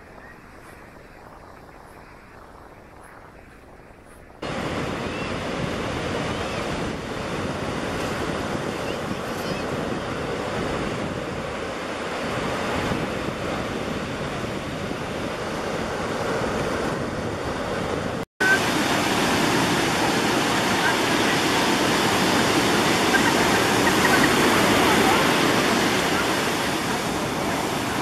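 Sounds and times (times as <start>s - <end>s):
waves breaking on a beach: 0.0s - 28.0s
wind buffeting microphone: 0.0s - 28.0s.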